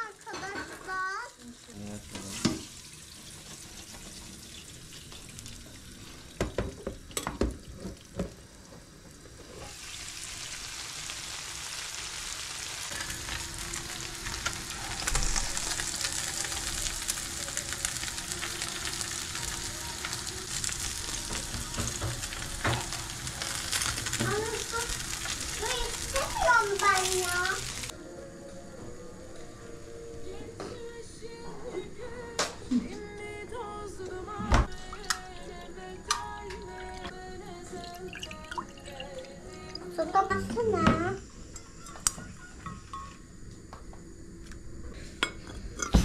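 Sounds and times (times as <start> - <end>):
fish sizzling in a pan: 0.0 - 27.9.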